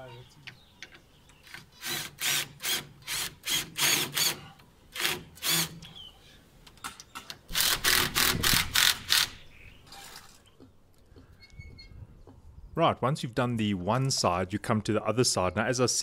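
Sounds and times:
power drill drilling into brick: 1.8 - 4.4, 5.0 - 5.8, 7.5 - 9.3.

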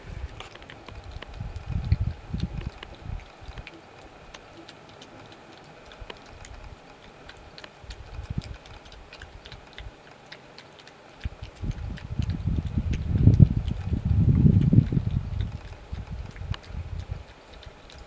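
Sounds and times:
low rumbling and thumping: 0.0 - 3.6, 11.2 - 17.2
badger munching: 0.0 - 18.0.

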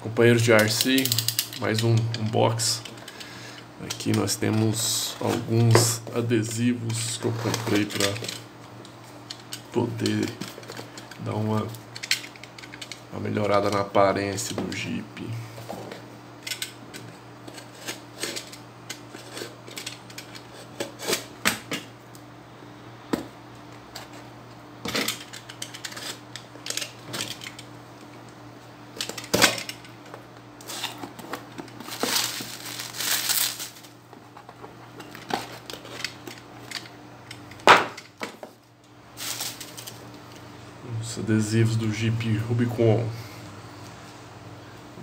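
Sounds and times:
tape tearing: 31.7 - 33.9, 39.2 - 40.0
bubble wrap crinkling: 31.7 - 34.0, 39.2 - 40.0.

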